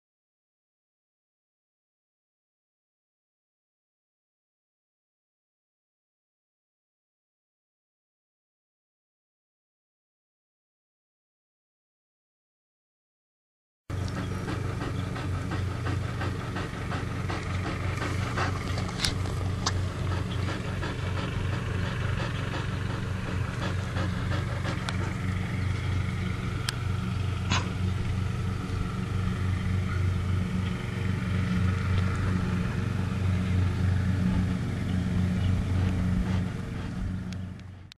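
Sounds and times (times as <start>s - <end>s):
dog panting: 13.9s - 37.9s
steady low hum: 13.9s - 37.9s.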